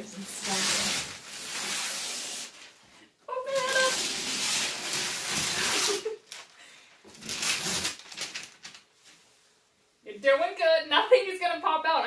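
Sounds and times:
wrapping paper tearing and rustling: 0.0s - 2.8s, 3.5s - 8.9s.

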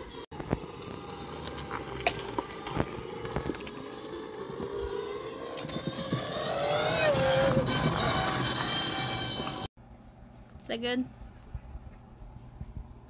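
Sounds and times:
riding mower motor whine: 0.3s - 9.7s.

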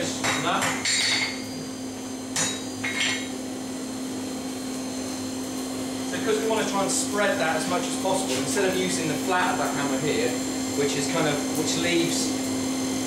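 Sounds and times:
hammer striking steel on anvil: 0.0s - 1.7s, 2.3s - 3.4s
steady hum: 0.0s - 13.0s.

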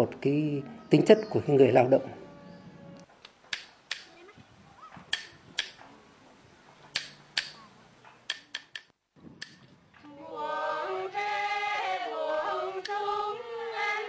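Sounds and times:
wooden clappers clacking: 3.5s - 4.2s, 5.0s - 5.9s, 6.8s - 9.6s
women's chorus singing: 10.0s - 14.0s.

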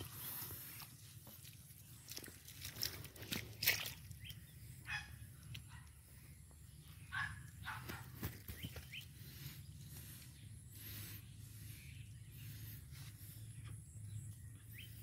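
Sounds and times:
low steady rumble: 9.0s - 15.0s.

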